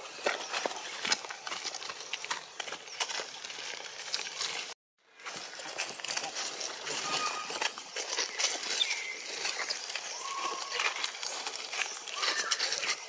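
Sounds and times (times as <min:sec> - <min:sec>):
dry leaves crackling: 0:00.0 - 0:13.0
baby monkey screaming: 0:10.2 - 0:11.0.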